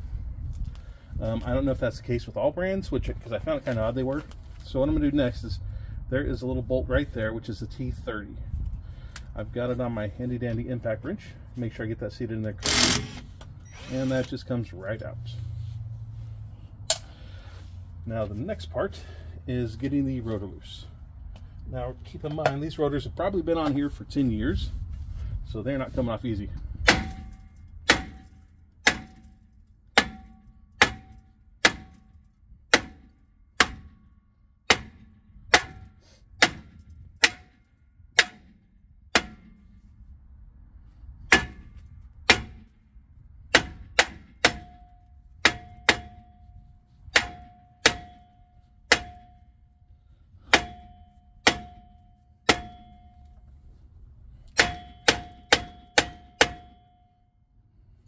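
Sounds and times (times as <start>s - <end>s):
hammer clanging on metal rotor: 50.5s - 53.3s, 54.5s - 57.0s.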